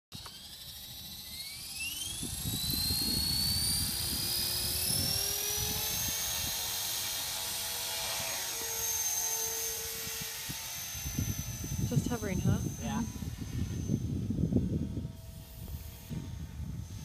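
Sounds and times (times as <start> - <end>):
rc helicopter motor whine: 0.1 - 17.0
wind buffeting microphone: 2.1 - 6.9, 9.7 - 17.0.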